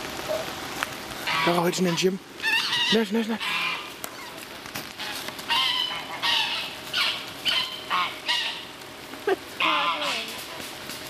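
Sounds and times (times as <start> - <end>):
goose honking: 1.2 - 4.4, 5.0 - 8.7, 9.6 - 10.7.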